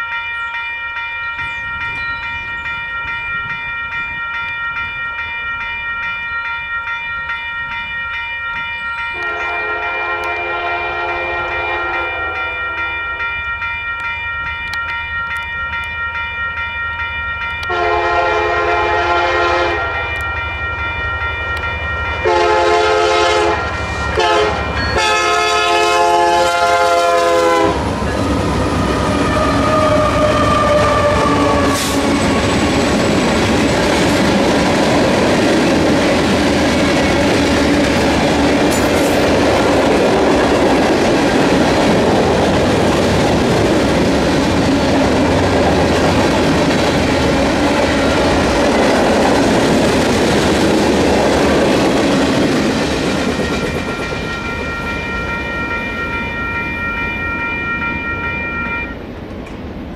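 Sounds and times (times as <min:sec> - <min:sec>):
railroad crossing bell ringing: 0:00.0 - 0:59.2
train rumbling past: 0:08.8 - 0:16.1, 0:17.0 - 0:59.9
locomotive air horn blasts: 0:09.2 - 0:12.9, 0:17.6 - 0:20.3, 0:22.2 - 0:27.9, 0:29.2 - 0:32.2.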